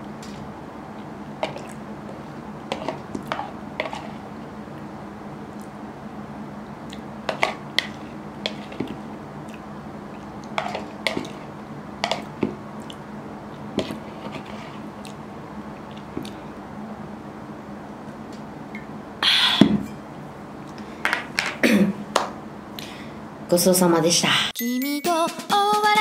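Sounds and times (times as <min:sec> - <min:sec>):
steady low hum: 0:00.0 - 0:24.6
soft chewing: 0:00.2 - 0:04.9, 0:05.5 - 0:05.8, 0:06.8 - 0:16.6
metal spoon scraping a bowl: 0:02.7 - 0:04.2, 0:10.6 - 0:11.4.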